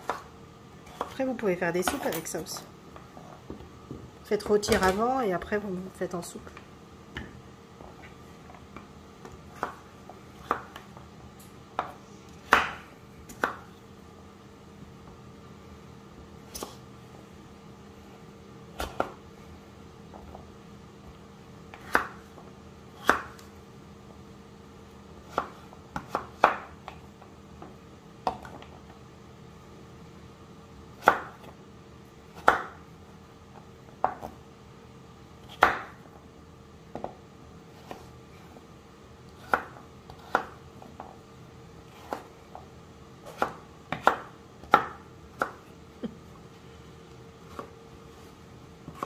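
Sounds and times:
knife chopping on wooden board: 0.9s - 1.2s, 9.2s - 10.9s, 11.8s - 13.7s, 18.8s - 19.2s, 21.7s - 22.3s, 23.0s - 23.4s, 25.2s - 27.0s, 31.0s - 31.5s, 32.4s - 32.8s, 35.4s - 36.0s, 39.4s - 41.1s, 43.2s - 45.6s.

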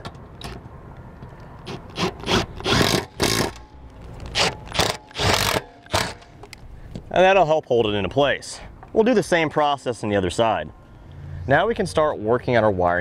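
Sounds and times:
cordless drill driving screws: 1.7s - 3.6s, 4.3s - 6.3s.

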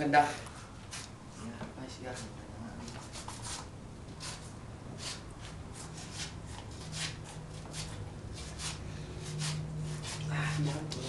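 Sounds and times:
knife scraping through fish skin: 3.0s - 11.0s.

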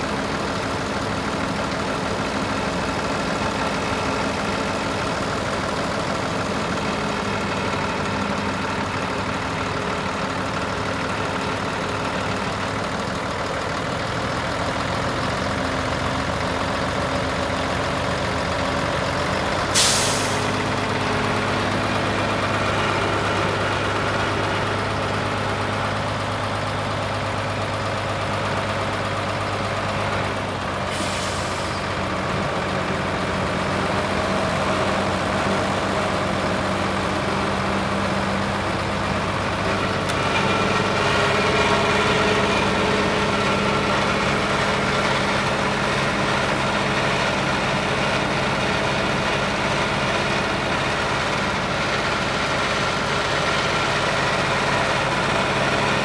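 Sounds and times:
diesel engine running: 0.0s - 56.0s
short air hiss: 19.8s - 20.5s.

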